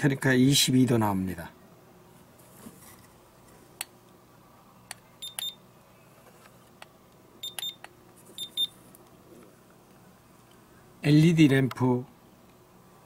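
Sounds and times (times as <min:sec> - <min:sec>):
thermometer beeping: 0:05.2 - 0:05.6, 0:07.4 - 0:08.8.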